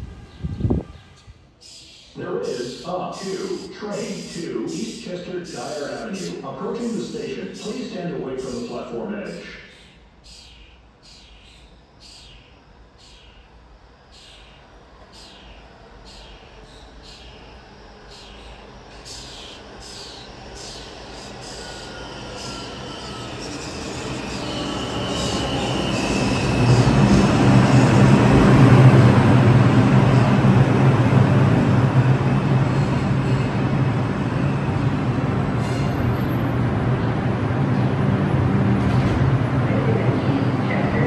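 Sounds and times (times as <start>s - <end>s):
train humming at platform: 0.0s - 41.0s
subway wheels clicking over rail joints: 14.2s - 41.0s
high wheel squeal: 18.2s - 28.1s.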